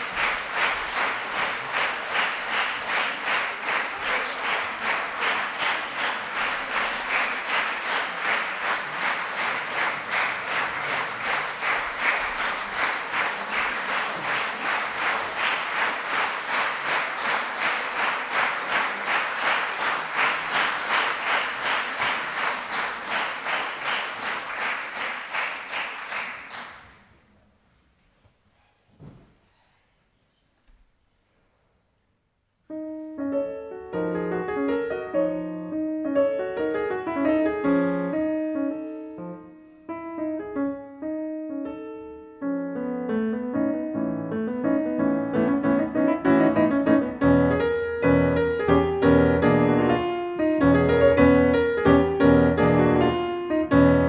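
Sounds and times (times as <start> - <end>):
audience clapping in rhythm: 0.0 - 27.2, 44.8 - 54.0.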